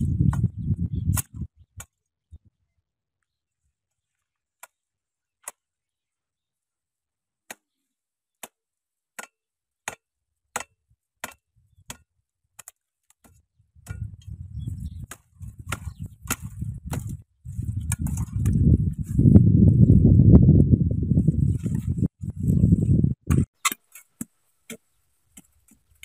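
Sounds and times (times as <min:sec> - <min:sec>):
machete chopping brush: 0:08.4 - 0:08.6, 0:09.2 - 0:14.1, 0:15.0 - 0:17.2
cut branches rustling: 0:15.0 - 0:18.8.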